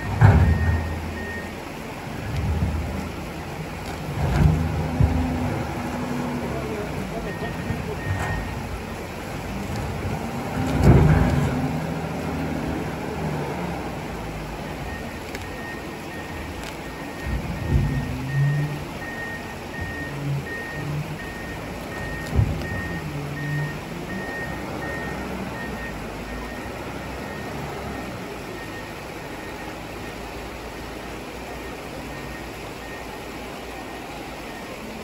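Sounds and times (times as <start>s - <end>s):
back-up alarm beeping: 0.0s - 1.6s, 4.8s - 9.0s, 14.8s - 35.0s
diesel engine revving under load: 0.0s - 35.0s.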